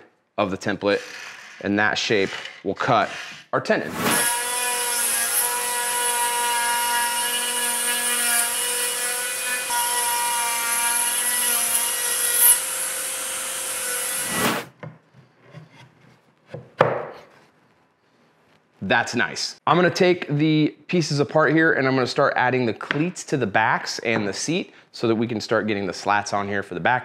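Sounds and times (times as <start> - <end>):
bit cutting into wood: 1.0 - 14.7.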